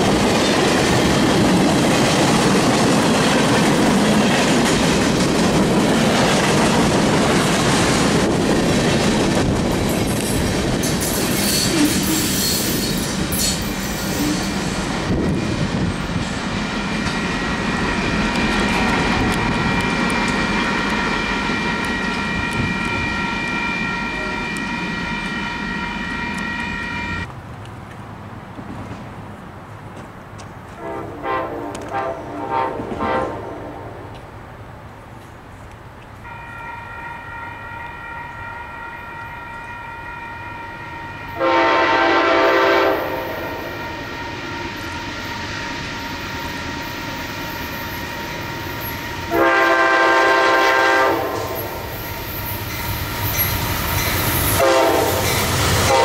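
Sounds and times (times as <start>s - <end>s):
train horn blasts: 20.8s - 27.3s, 30.7s - 34.1s, 36.2s - 52.2s, 54.4s - 56.0s.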